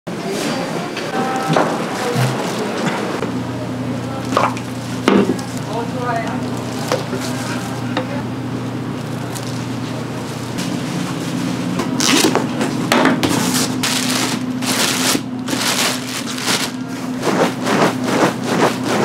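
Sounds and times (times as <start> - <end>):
steady low hum: 0.8 - 19.0.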